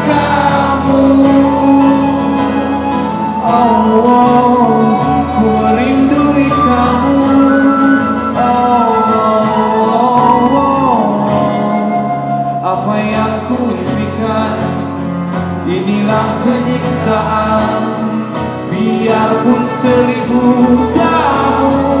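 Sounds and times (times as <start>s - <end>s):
flute melody: 0.0s - 14.5s, 16.3s - 22.0s
acoustic guitar: 0.0s - 22.0s.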